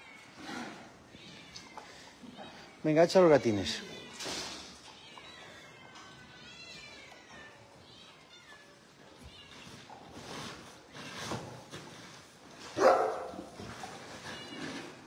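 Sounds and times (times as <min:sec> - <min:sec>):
cats meowing: 0:00.0 - 0:11.3.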